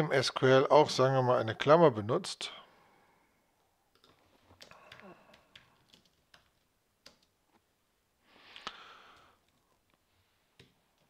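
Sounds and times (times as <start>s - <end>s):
keyboard typing: 3.9s - 7.4s
soft hiss: 7.5s - 11.0s.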